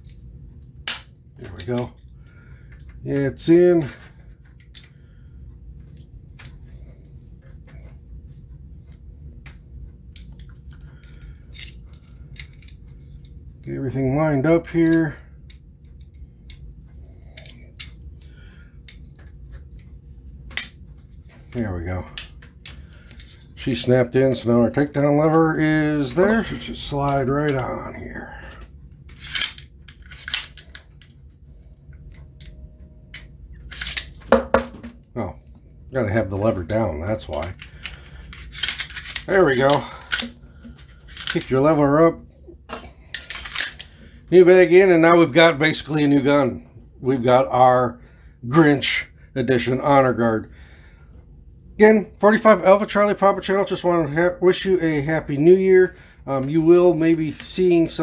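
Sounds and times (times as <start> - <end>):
low steady hum: 0.0 - 58.0
pistol parts clicking and scraping: 0.8 - 2.1, 4.5 - 5.0, 10.2 - 13.4, 17.2 - 18.0, 22.2 - 23.8, 29.1 - 31.1, 32.0 - 34.2, 37.2 - 41.6, 42.7 - 44.0
pistol slide clicking and scraping: 29.1 - 30.8, 33.7 - 34.1, 37.8 - 40.4, 43.1 - 43.9.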